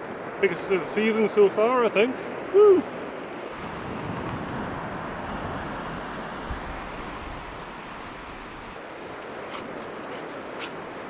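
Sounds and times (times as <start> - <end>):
surf washing onto beach: 0.0 - 11.0
wind noise on microphone: 3.5 - 11.0.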